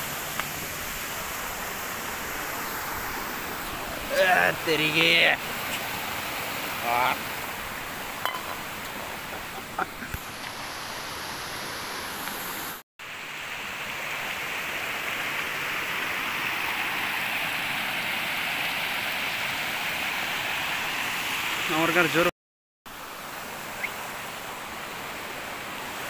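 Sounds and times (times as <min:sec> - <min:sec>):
waterfall and stream over rocks: 0:00.0 - 0:22.3, 0:22.9 - 0:26.0.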